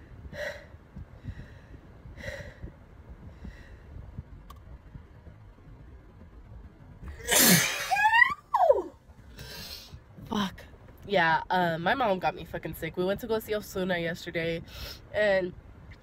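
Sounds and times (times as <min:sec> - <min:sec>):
woman sneezing: 0:07.2 - 0:08.1.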